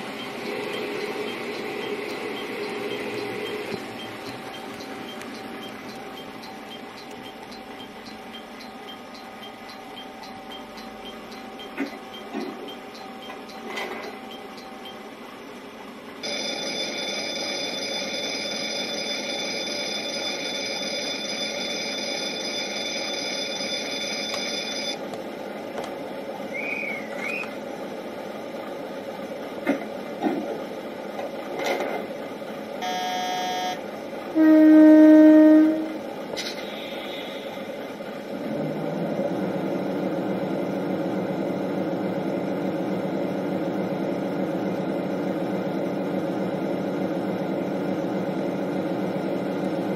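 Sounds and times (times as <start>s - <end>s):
steady low hum: 0.0s - 16.6s, 32.1s - 49.9s
electric station bell ringing: 16.2s - 25.0s, 32.8s - 33.8s
diesel railcar horn: 34.3s - 37.5s.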